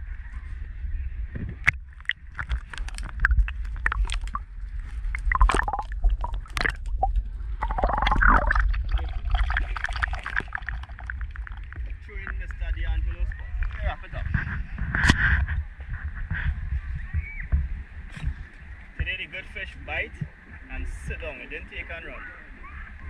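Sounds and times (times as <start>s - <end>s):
constant low rumble: 0.0s - 23.0s
underwater splashing and gurgling: 1.5s - 16.5s.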